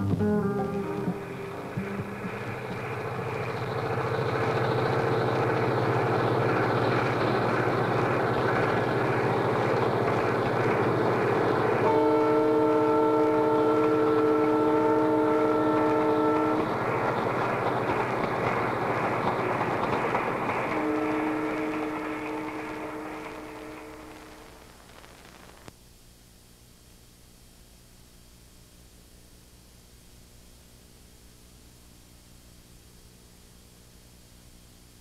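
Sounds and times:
train horn chord: 0:00.0 - 0:03.9, 0:11.2 - 0:17.2, 0:20.7 - 0:24.5
train rumbling: 0:00.0 - 0:25.6.

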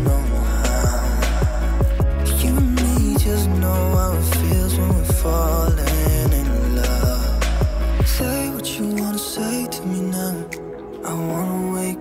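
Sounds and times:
deep drum hits: 0:00.0 - 0:03.4, 0:04.0 - 0:08.3
strong bass: 0:00.0 - 0:08.4
pop song: 0:00.0 - 0:12.0.

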